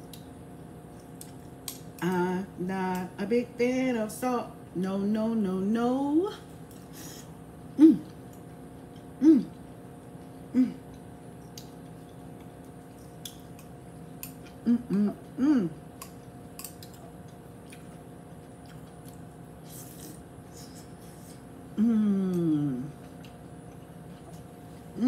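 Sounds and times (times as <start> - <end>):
closed-mouth hums: 7.0 - 8.4, 9.0 - 9.8, 10.4 - 11.8, 14.4 - 16.1, 19.6 - 25.0
chewing: 8.0 - 14.6, 15.2 - 20.2.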